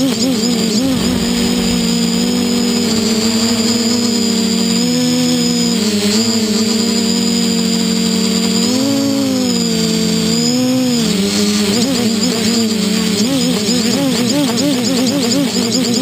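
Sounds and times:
drone motors humming: 0:00.6 - 0:05.9.

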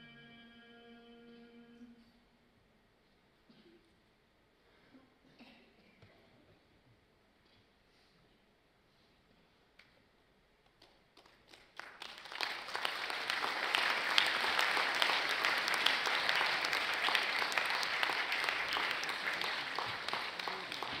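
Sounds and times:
audience applauding: 0:11.2 - 0:21.0.

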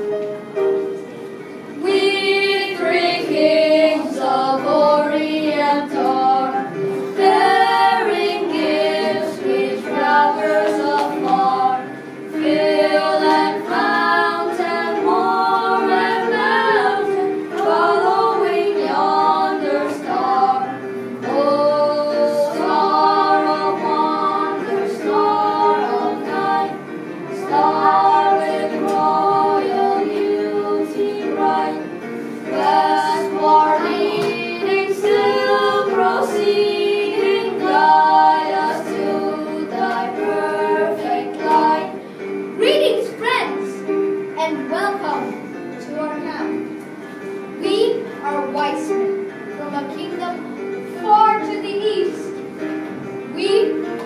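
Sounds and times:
children singing: 0:01.7 - 0:43.9.

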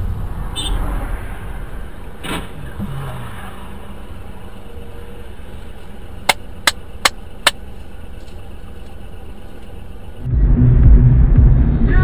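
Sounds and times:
car hum inside cabin: 0:00.0 - 0:12.0
sharp clicks: 0:06.2 - 0:07.6.

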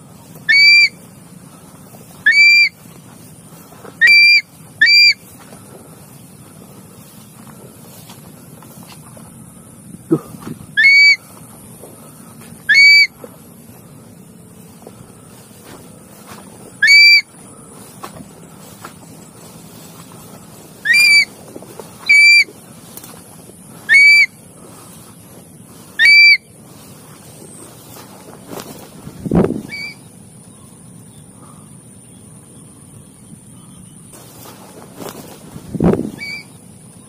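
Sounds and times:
faint rustling: 0:00.0 - 0:31.5, 0:34.1 - 0:36.7
shrill whistled call: 0:00.4 - 0:01.0, 0:02.1 - 0:02.8, 0:04.0 - 0:05.3, 0:10.7 - 0:11.3, 0:12.6 - 0:13.2, 0:16.8 - 0:17.4, 0:20.8 - 0:21.4, 0:22.0 - 0:22.6, 0:23.8 - 0:24.4, 0:25.9 - 0:26.6, 0:29.6 - 0:30.1, 0:36.0 - 0:36.6.

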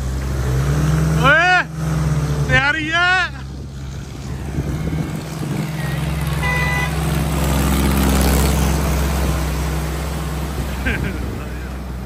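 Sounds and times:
vehicle engine under load: 0:00.0 - 0:12.0
short horn toot: 0:05.8 - 0:07.0.

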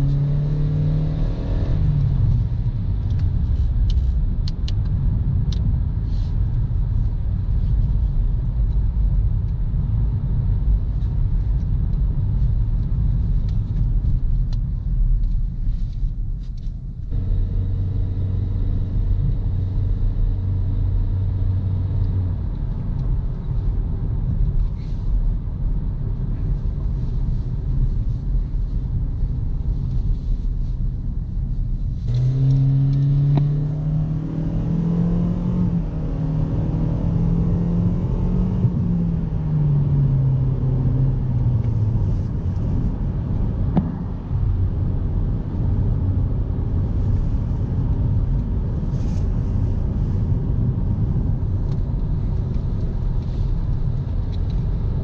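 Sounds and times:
car engine accelerating: 0:00.0 - 0:04.8, 0:17.0 - 0:27.4, 0:32.0 - 0:55.0
road and tyre rumble: 0:00.0 - 0:55.0.

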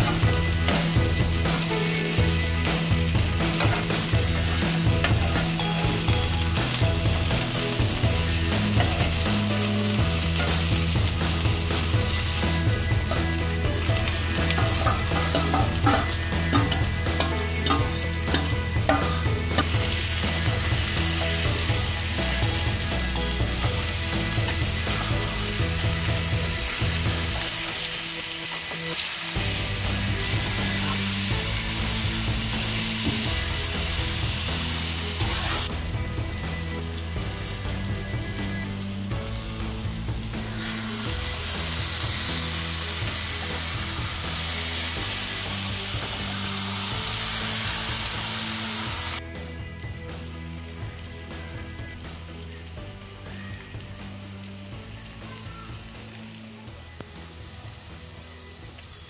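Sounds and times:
background music: 0:00.0 - 0:59.0
chicken and onions sizzling: 0:00.0 - 0:59.0
spatula stirring in pan: 0:06.6 - 0:22.0.

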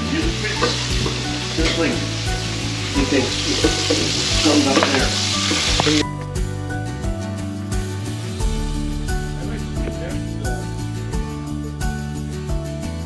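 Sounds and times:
fish sizzling in hot oil: 0:00.0 - 0:06.0
background music: 0:00.0 - 0:13.0.

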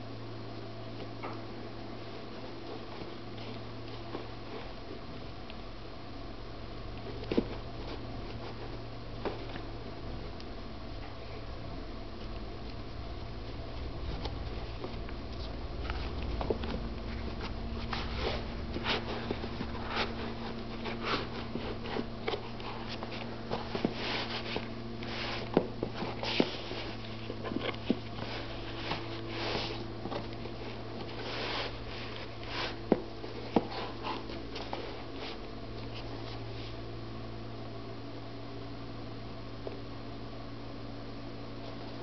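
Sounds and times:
low hum: 0:00.0 - 0:42.0
rustling and scraping of shoe insole: 0:01.0 - 0:05.1, 0:07.0 - 0:09.8, 0:13.4 - 0:36.9.

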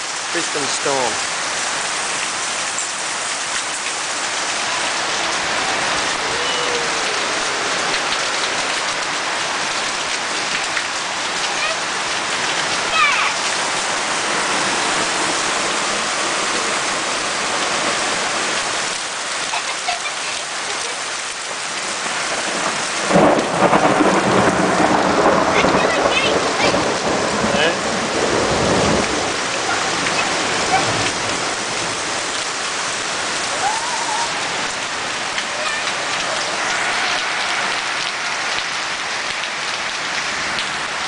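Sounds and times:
heavy rain on roof: 0:00.0 - 0:41.0
thunder: 0:22.3 - 0:29.3.

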